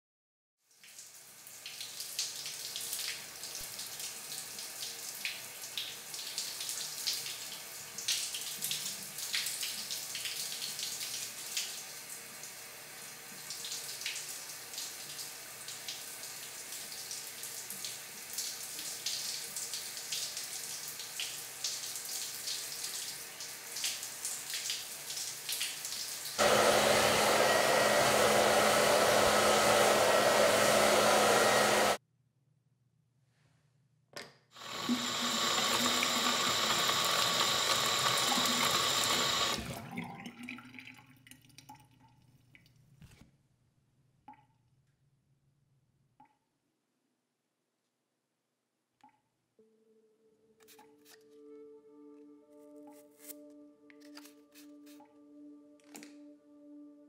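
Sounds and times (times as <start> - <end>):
shower water running: 0.8 - 32.0, 34.6 - 39.7
hair dryer blowing: 26.4 - 32.0, 34.6 - 39.6.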